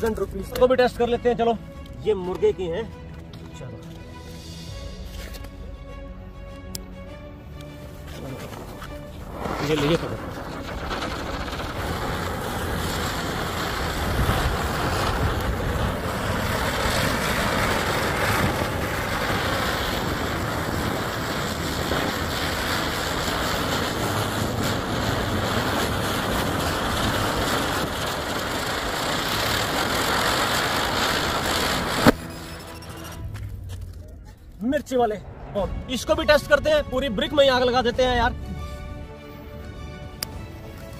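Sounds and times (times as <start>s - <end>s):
firecracker fizzing hiss: 8.1s - 33.8s
firecracker sharp crack: 9.2s - 34.0s.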